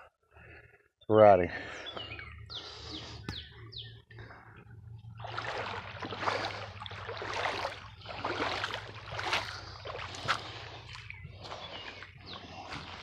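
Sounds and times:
footsteps splashing through creek: 5.1 - 13.0.

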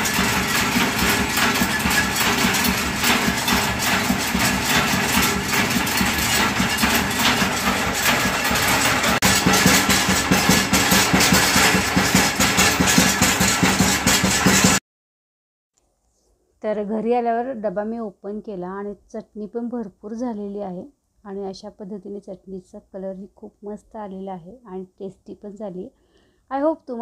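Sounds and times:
pounding mill clattering: 0.0 - 14.8.

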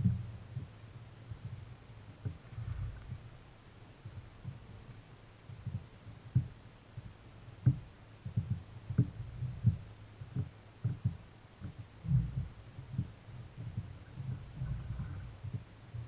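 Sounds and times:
sharp knocks on boat: 7.6 - 13.1
dull thumps on boat: 7.6 - 15.7.

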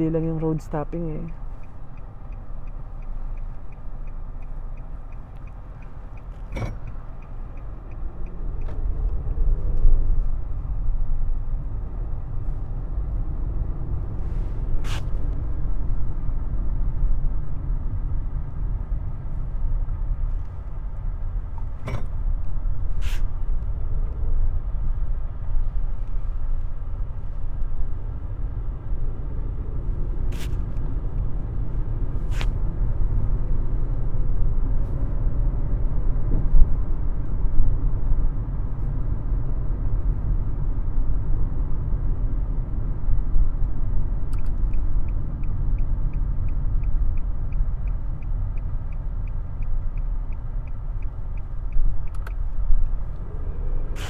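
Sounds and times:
turn signal ticking: 0.0 - 14.2, 41.5 - 54.0
car engine and tyre rumble: 0.0 - 54.0
sharp clicks: 44.2 - 52.5.

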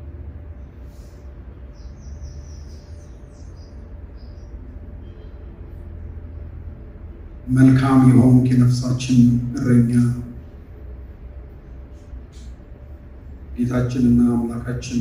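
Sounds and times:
steady low hum: 0.0 - 15.0
small bird chirping: 1.6 - 5.5.

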